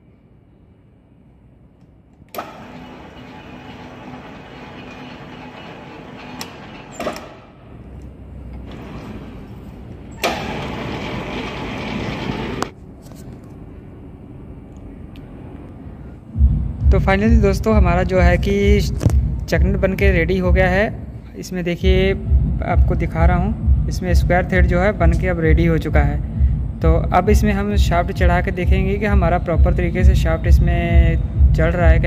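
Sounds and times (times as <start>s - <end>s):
lathe clicks: 2.2s - 12.7s
lathe mechanical drone: 2.3s - 12.8s.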